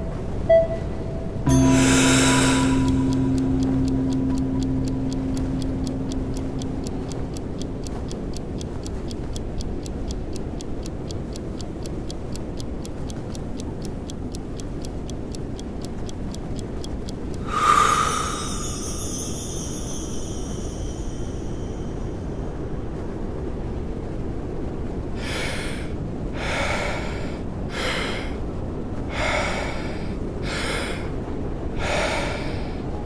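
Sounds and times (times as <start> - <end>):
low gong-like tone: 0.0 - 7.3
snowstorm wind: 1.1 - 33.0
rapid regular ticking: 1.5 - 22.2.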